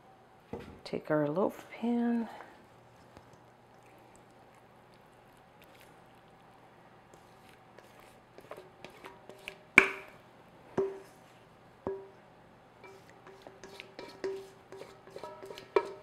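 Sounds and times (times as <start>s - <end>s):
batter scraping: 5.2s - 9.7s, 12.8s - 16.0s
metal bowl knocking: 9.8s - 10.1s, 10.8s - 11.0s, 11.9s - 12.2s, 15.1s - 16.0s.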